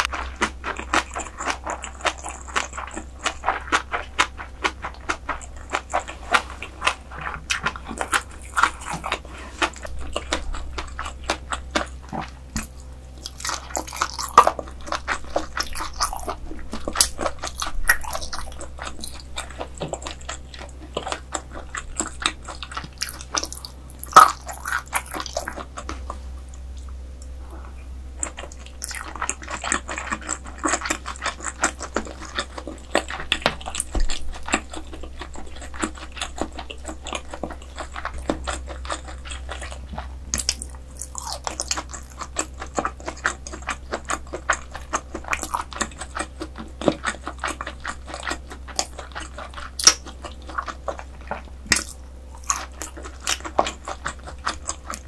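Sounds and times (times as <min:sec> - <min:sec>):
person chewing food: 0:00.0 - 0:55.0
wet mouth smacking and clicking: 0:28.2 - 0:55.0.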